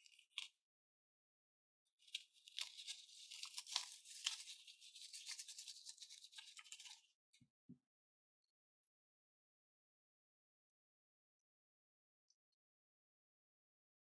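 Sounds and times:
foam beads and slime squishing: 0:02.0 - 0:07.0.

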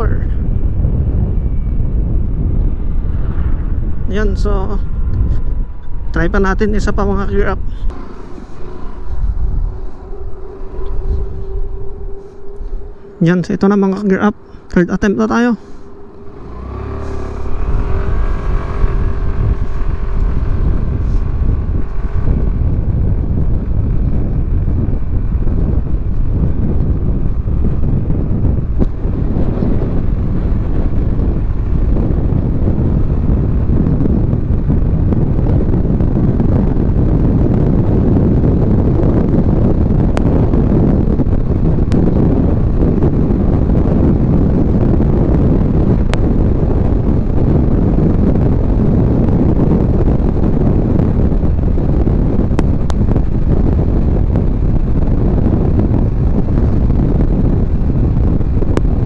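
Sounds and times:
wind rushing over microphone: 0:00.0 - 0:59.0
scooter engine running: 0:07.9 - 0:13.1, 0:15.7 - 0:35.0.

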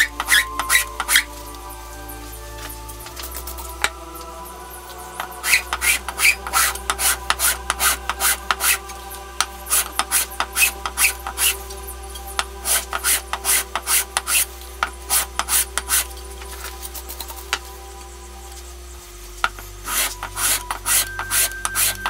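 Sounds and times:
soft background music: 0:00.0 - 0:22.0
metal plate rasping on sandpaper: 0:19.8 - 0:22.0.

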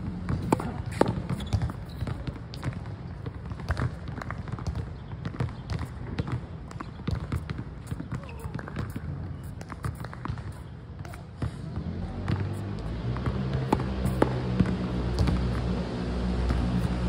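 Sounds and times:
racket hitting tennis ball: 0:00.0 - 0:02.8, 0:05.8 - 0:11.6, 0:12.2 - 0:17.0
steady low rumble: 0:12.0 - 0:17.0.

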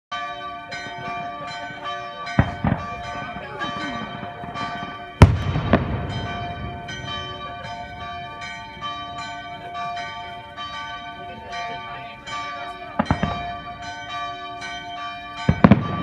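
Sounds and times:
church bells pealing: 0:00.1 - 0:16.0
firework bang: 0:05.2 - 0:07.1.

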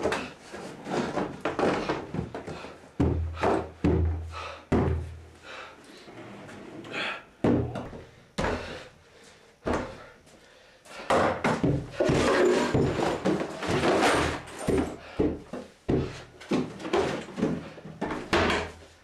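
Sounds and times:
knocks and clatter: 0:11.1 - 0:15.0.

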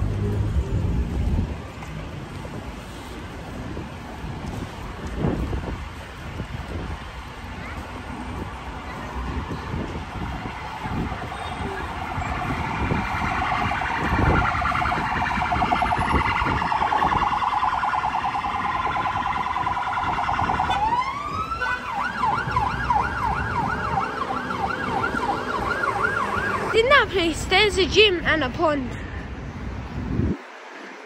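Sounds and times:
emergency vehicle siren: 0:05.2 - 0:26.8.

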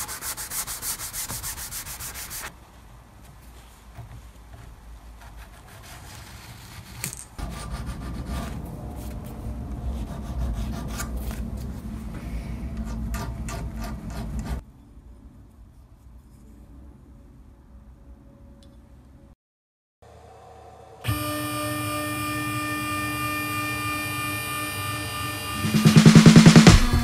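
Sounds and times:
sandpaper rubbing metal: 0:00.0 - 0:02.5.

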